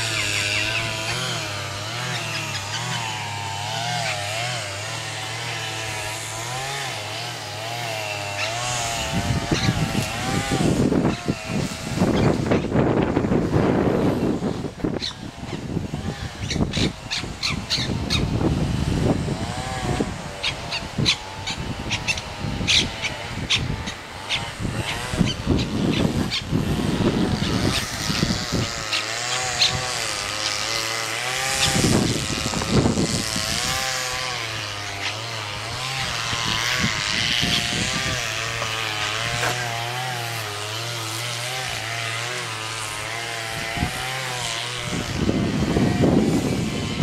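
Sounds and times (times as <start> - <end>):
propeller aircraft engine droning: 0.0 - 4.8.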